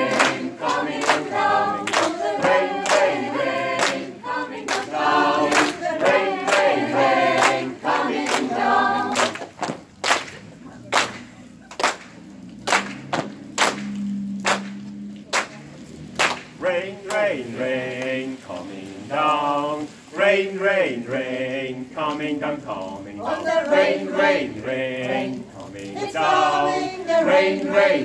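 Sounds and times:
choir singing a cappella: 0.0s - 9.4s, 16.6s - 28.0s
hand claps: 0.1s - 3.2s, 3.8s - 4.1s, 4.7s - 6.8s, 7.4s - 15.6s, 16.2s - 16.5s.

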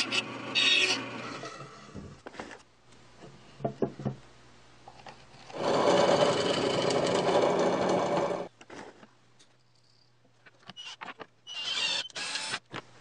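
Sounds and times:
drill press boring wood: 5.5s - 8.5s, 11.6s - 12.6s.

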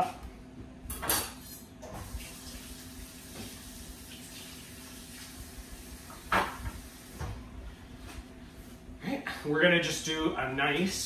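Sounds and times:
water running from tap: 2.0s - 7.2s.

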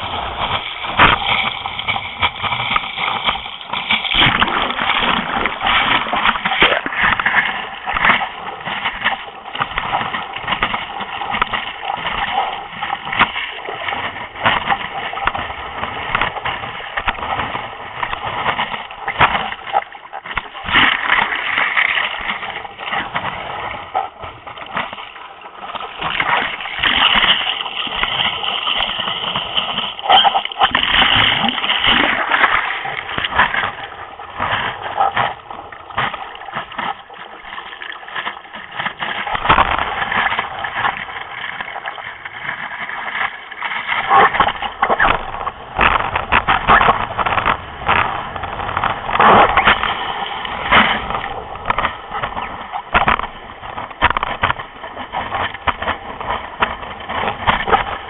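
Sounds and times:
paddle strokes splashing water: 0.0s - 58.0s
sea water rushing and splashing: 0.0s - 58.0s.

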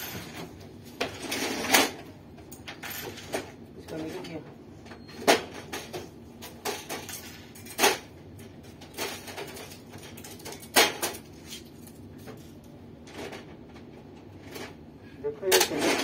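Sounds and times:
parts clattering and knocking: 0.0s - 11.4s.

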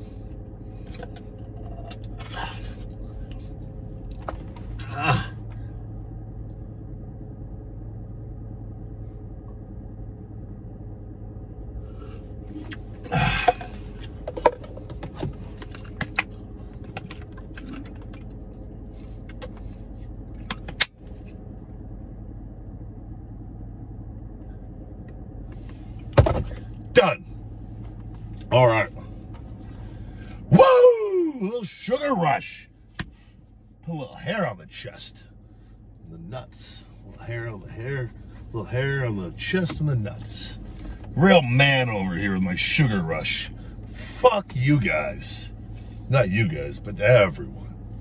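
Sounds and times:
car cabin hum: 0.0s - 48.0s.

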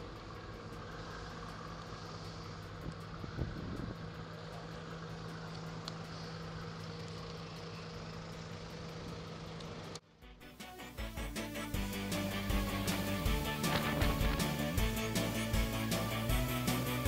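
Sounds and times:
engine idling: 0.0s - 17.0s
music: 10.1s - 17.0s.

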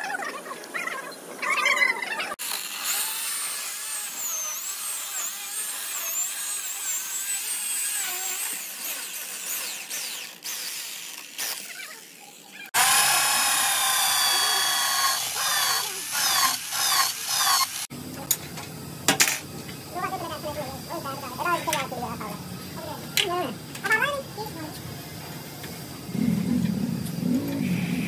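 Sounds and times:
electric chainsaw cutting wood: 2.4s - 17.9s
electric drill boring into wood: 2.4s - 17.9s.

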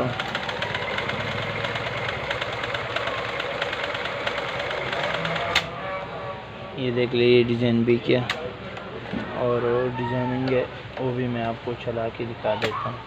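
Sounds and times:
sewing machine running: 0.0s - 5.7s.

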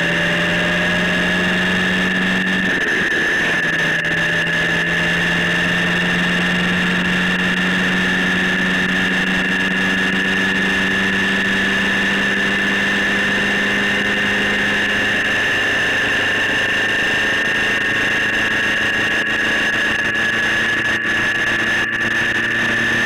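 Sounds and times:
motorcycle engine drone: 0.0s - 23.0s
road noise: 0.0s - 23.0s
wind rush: 0.1s - 4.6s.

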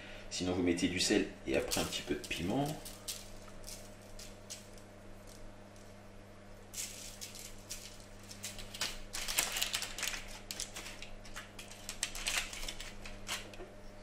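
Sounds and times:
low steady hum: 0.0s - 14.0s
parchment paper rustling: 1.6s - 5.4s, 6.8s - 13.5s.

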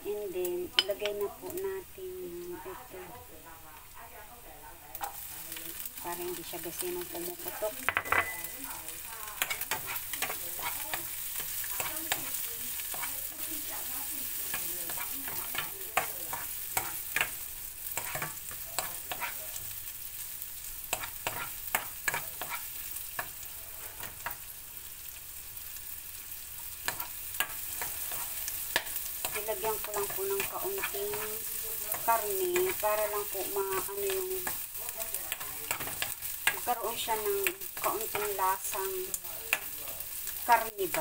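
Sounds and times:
food sizzling in oil: 0.0s - 41.0s
spoon scraping pan: 6.4s - 19.7s, 20.8s - 24.6s, 26.6s - 41.0s.

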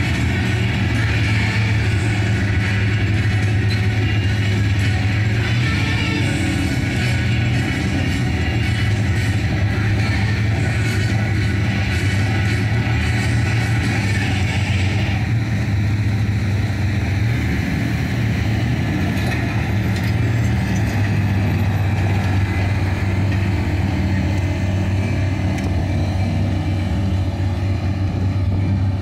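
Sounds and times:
large engine running: 0.0s - 29.0s.

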